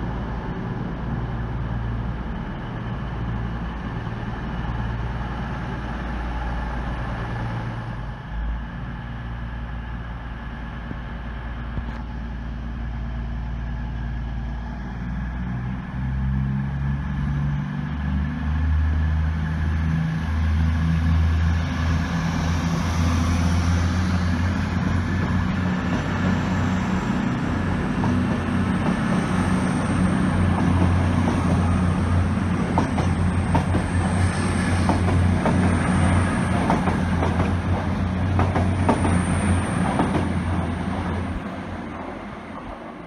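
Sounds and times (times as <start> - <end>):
train diesel engine drone: 0.0 - 43.0
train wheels clicking over rail joints: 24.4 - 42.9.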